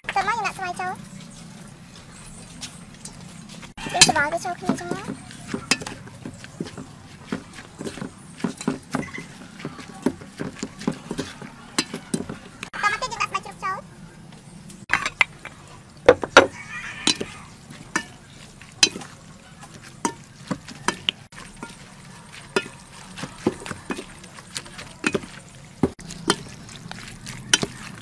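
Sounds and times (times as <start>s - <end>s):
utensil tapping steel bowl: 3.9s - 12.6s, 16.1s - 18.2s, 18.8s - 19.2s, 19.9s - 21.9s, 22.5s - 28.0s.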